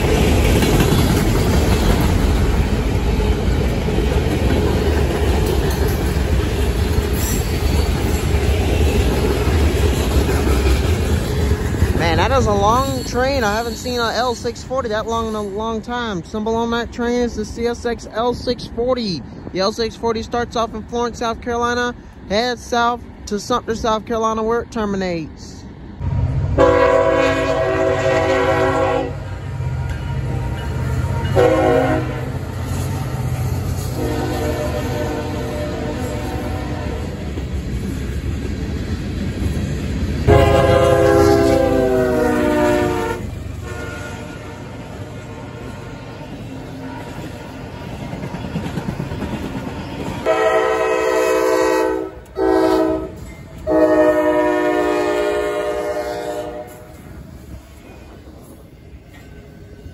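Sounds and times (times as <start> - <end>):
low rumble of passing train: 0.0 - 59.9
locomotive horn blasts: 26.6 - 29.3, 30.2 - 32.4, 34.0 - 37.0, 40.3 - 46.0, 50.2 - 56.9.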